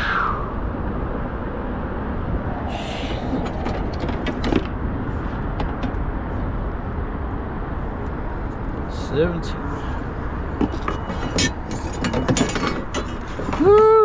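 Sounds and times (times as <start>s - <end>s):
low rumble: 0.0s - 7.1s.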